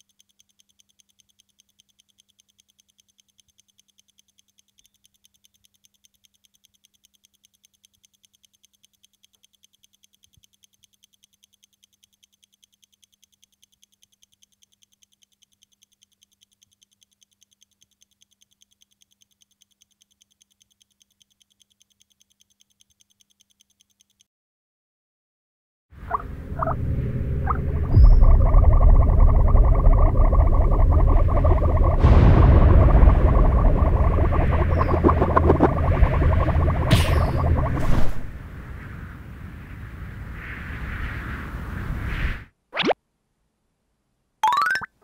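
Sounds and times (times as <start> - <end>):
rapid even ticking: 0.0 - 24.3, 27.5 - 37.8
steady low hum: 26.0 - 40.1.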